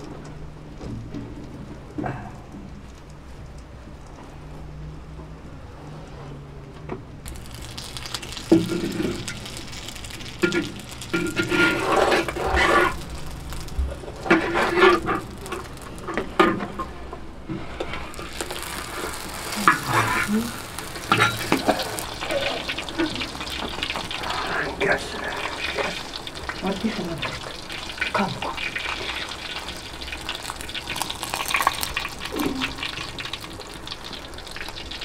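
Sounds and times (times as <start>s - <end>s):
flatbread sizzling in a pan: 7.3s - 35.0s
spatula scraping a pan: 8.4s - 16.9s, 17.6s - 24.6s.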